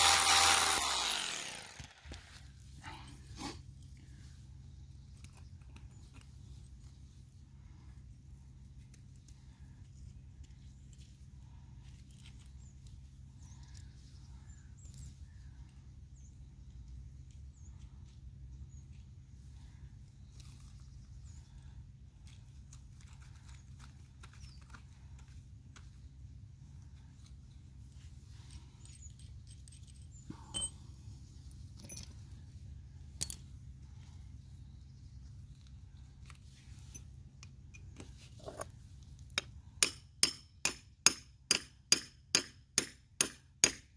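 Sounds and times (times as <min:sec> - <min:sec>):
hand tools clicking and tapping: 0:28.5 - 0:30.8, 0:39.2 - 0:43.9
metal hand tools clinking: 0:28.5 - 0:30.8.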